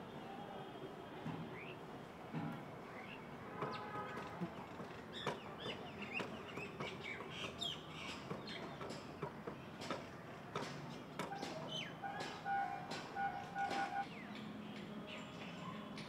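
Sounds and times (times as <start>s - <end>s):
birds chirping and whistling: 11.4s - 14.4s.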